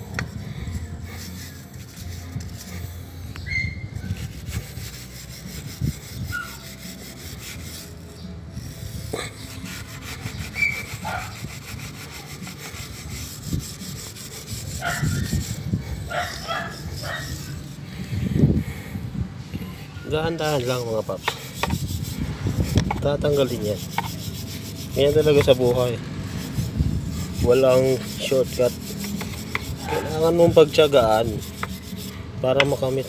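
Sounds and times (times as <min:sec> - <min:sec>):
wire brush scrubbing a chain: 0:00.0 - 0:03.1, 0:03.9 - 0:17.8, 0:20.2 - 0:33.0.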